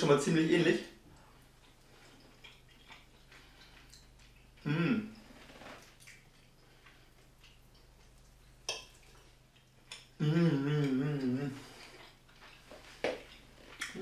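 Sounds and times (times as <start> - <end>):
man humming mm: 4.6 - 5.2, 10.2 - 11.8.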